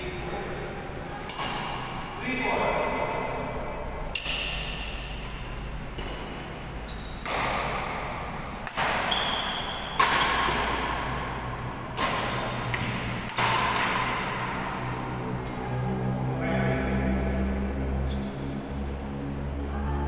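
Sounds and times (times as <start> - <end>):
badminton racket hitting shuttlecock: 1.2 - 2.2, 4.0 - 6.6, 7.2 - 14.6.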